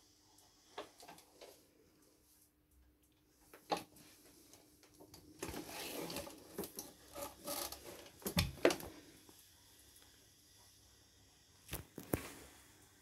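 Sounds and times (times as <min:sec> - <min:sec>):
rubbing and rustling: 0:05.4 - 0:08.3.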